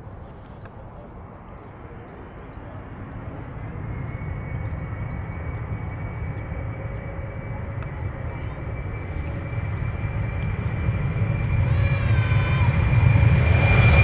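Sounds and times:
high engine whine: 0.0s - 14.0s
jet engines rumbling: 0.0s - 14.0s.

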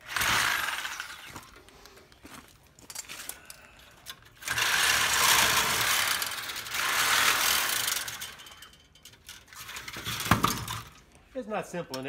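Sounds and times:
reciprocating saw cutting metal tubes: 0.0s - 1.6s, 4.1s - 8.8s.

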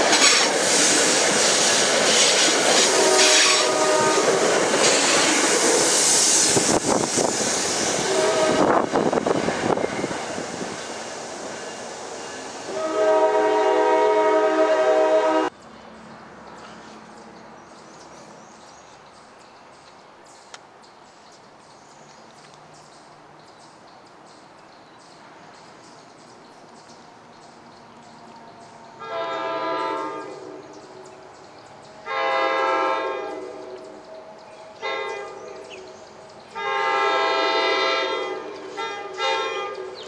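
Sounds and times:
train horn blast: 0.1s - 0.5s, 2.7s - 5.4s, 8.0s - 10.1s, 12.6s - 15.6s, 29.0s - 31.1s, 32.0s - 33.9s, 34.7s - 35.8s, 36.5s - 40.0s.

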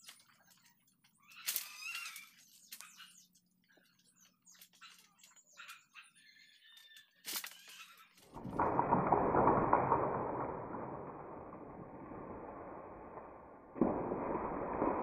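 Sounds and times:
faint animal calls: 1.2s - 3.3s.

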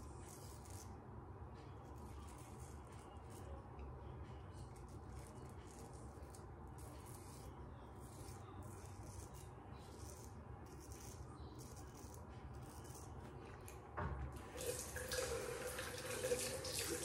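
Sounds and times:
razor scraping stubble: 0.0s - 13.9s
water running into sink: 14.4s - 17.0s.

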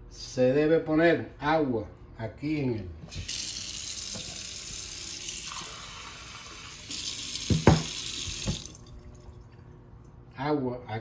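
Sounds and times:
tap running into metal sink: 4.0s - 4.5s, 6.9s - 8.8s
sharp knocks: 7.5s - 8.7s.

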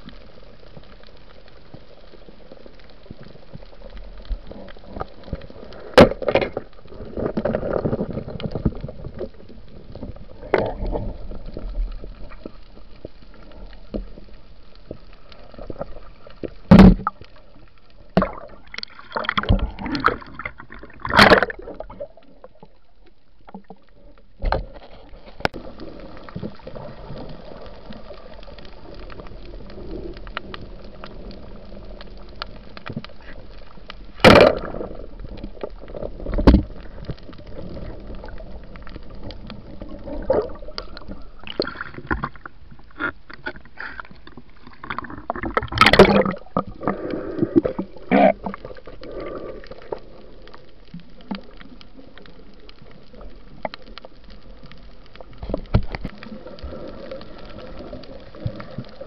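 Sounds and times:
steady underwater hiss: 0.0s - 59.0s
gurgling bubble bursts: 18.2s - 22.4s, 37.5s - 42.4s, 44.7s - 50.2s
sharp underwater knocks: 34.2s - 34.8s.

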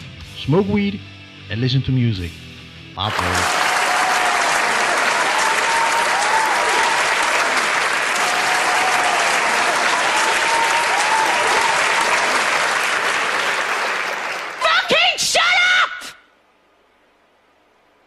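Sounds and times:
crowd clapping: 3.0s - 15.0s
high whoop: 3.4s - 7.4s, 8.1s - 12.4s.

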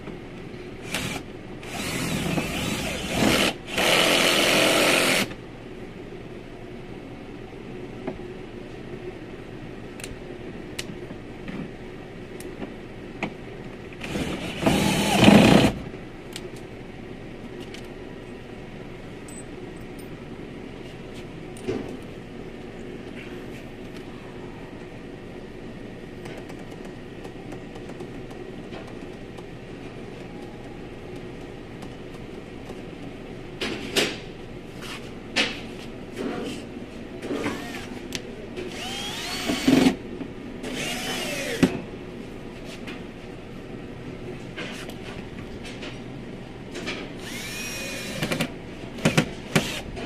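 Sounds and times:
drill driving screws into plastic: 38.7s - 40.0s, 47.2s - 49.8s.

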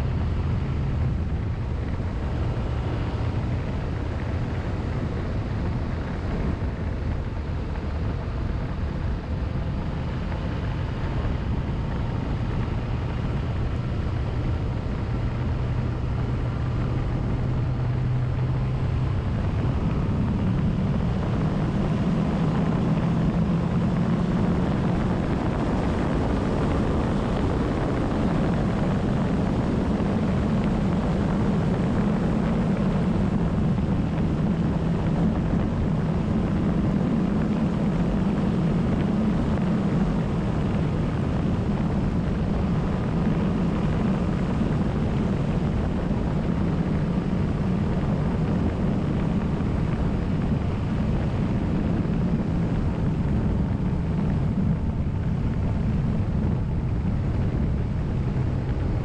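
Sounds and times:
vehicle engine running: 0.0s - 59.0s.

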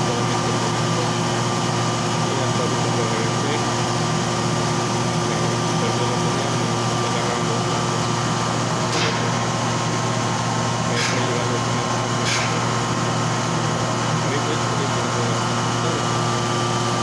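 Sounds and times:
machine humming: 0.0s - 17.0s.

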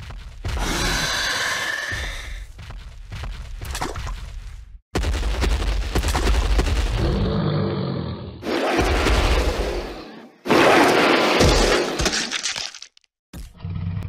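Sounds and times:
deep growling dinosaur roars: 7.0s - 8.4s, 13.5s - 14.0s.

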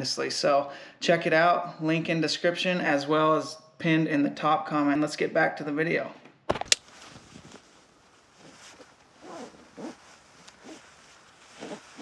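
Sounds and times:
clothing and strap rustling: 6.7s - 12.0s.

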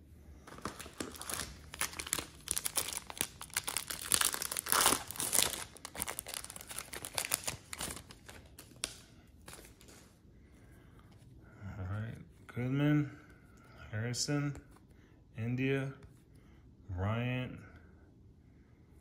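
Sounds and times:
foil wrapper crinkling and tearing: 0.4s - 10.1s.

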